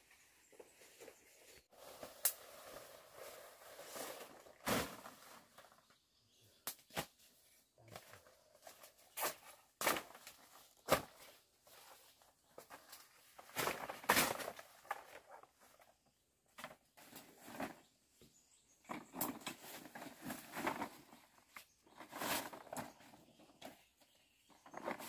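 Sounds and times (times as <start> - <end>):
large leaves rustling: 0.8 - 5.8
sharp snaps of stems: 6.6 - 7.1.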